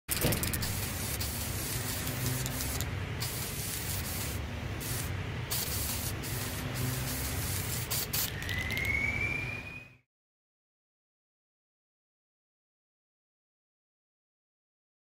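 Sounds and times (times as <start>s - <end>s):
spray-paint can hissing: 0.1s - 8.9s.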